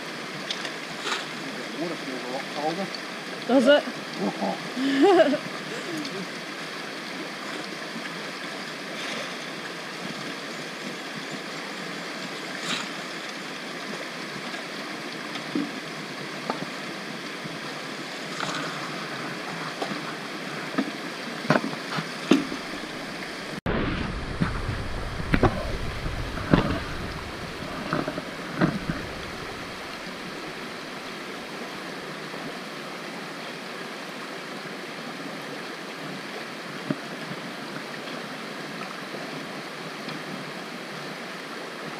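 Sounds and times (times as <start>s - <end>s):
creek rushing: 0.0s - 41.9s
low rumble: 22.5s - 30.9s.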